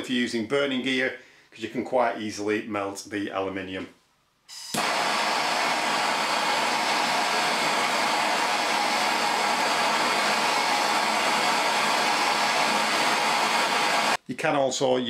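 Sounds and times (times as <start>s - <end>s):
blowtorch flame hissing: 4.7s - 14.2s.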